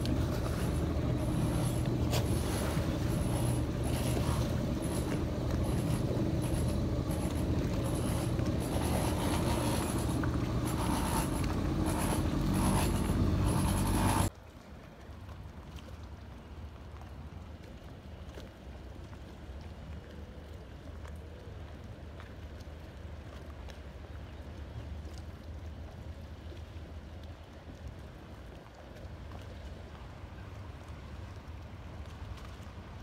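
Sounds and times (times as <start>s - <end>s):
water washing: 0.0s - 14.3s
boat engine low rumble: 0.0s - 33.0s
wind: 0.0s - 33.0s.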